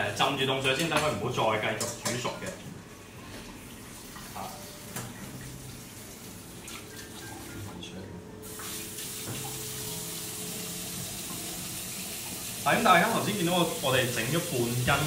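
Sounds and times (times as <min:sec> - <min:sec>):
tap running into metal sink: 0:08.6 - 0:09.6.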